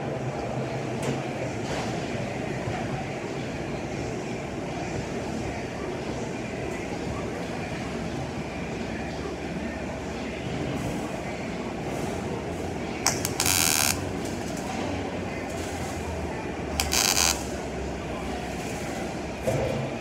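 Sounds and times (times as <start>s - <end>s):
steady background hiss and hum: 0.0s - 20.0s
welding arc crackling: 13.1s - 14.6s, 16.7s - 17.6s.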